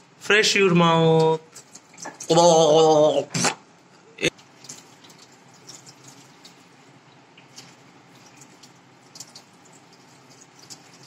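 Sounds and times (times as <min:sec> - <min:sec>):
tap running into washbasin: 0:01.2 - 0:02.3, 0:07.4 - 0:11.0
small water splashes: 0:04.4 - 0:11.0.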